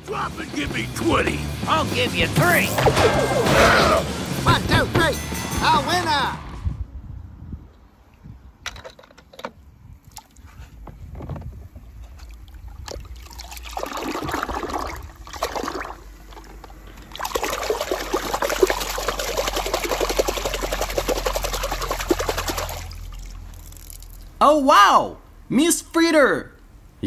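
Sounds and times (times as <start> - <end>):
water sloshing in plastic tub: 11.8 - 23.6.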